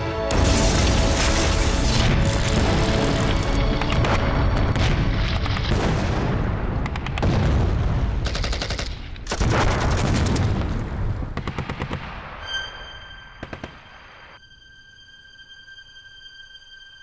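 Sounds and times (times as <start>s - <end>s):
explosions: 4.0s - 8.2s.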